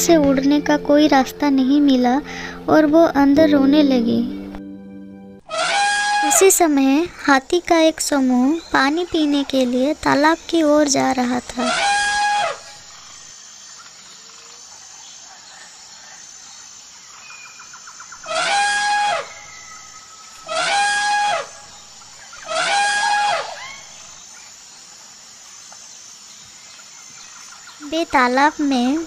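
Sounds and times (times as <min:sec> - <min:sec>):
jungle background: 0:00.0 - 0:29.0
elephant trumpeting: 0:05.5 - 0:06.6, 0:11.6 - 0:12.8, 0:18.2 - 0:19.6, 0:20.4 - 0:21.7, 0:22.4 - 0:24.0.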